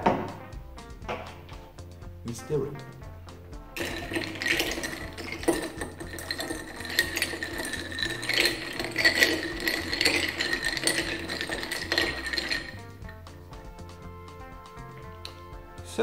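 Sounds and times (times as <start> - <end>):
spoon stirring ice in a glass: 3.8 - 13.1.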